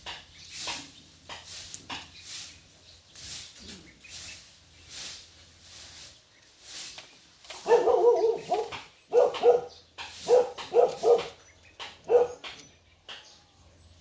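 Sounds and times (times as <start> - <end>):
dog barking: 7.6 - 11.4, 12.0 - 12.5.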